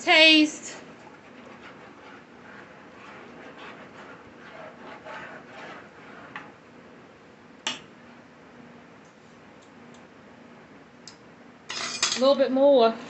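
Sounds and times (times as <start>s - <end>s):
spoon stirring gravy in pan: 0.1s - 8.2s.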